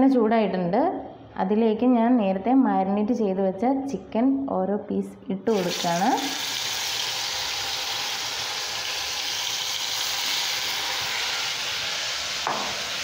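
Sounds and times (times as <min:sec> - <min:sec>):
chicken sizzling in hot oil: 0:05.5 - 0:13.0.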